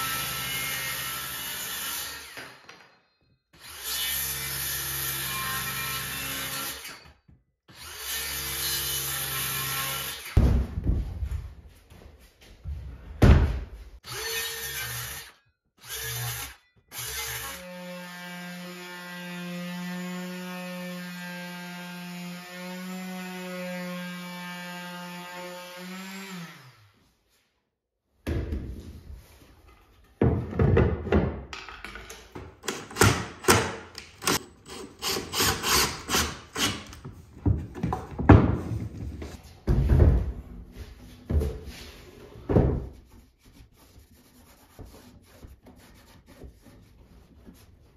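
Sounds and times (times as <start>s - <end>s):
wooden thunks: 10.4s - 11.4s, 37.4s - 40.5s
wooden knocks and clatter: 29.8s - 34.4s, 37.0s - 40.6s.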